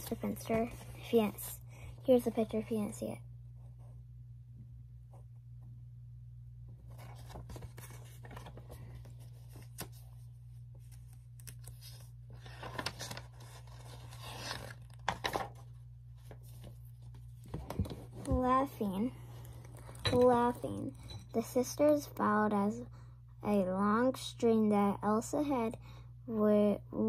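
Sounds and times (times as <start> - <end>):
book pages rustling and turning: 0.0 - 1.4, 6.7 - 20.9.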